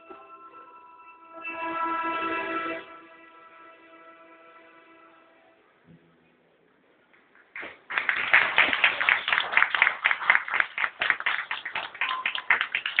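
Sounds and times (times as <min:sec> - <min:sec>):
audience applause: 0:07.5 - 0:13.0
person clapping loudly nearby: 0:07.6 - 0:13.0.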